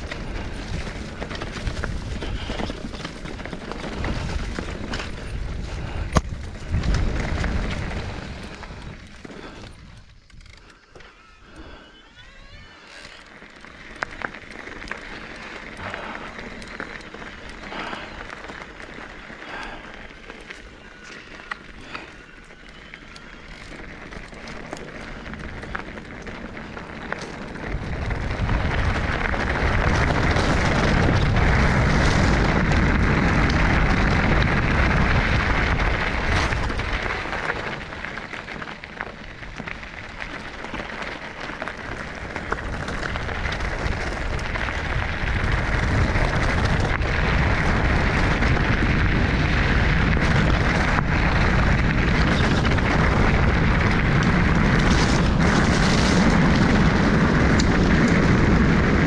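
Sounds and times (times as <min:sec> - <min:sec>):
wind buffeting microphone: 0:00.0 - 0:10.6, 0:23.6 - 0:59.0.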